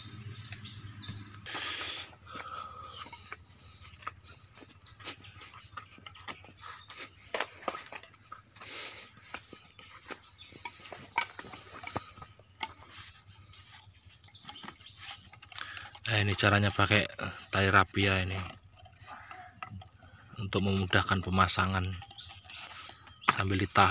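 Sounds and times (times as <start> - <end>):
metal parts and tools clinking: 9.4 - 23.9.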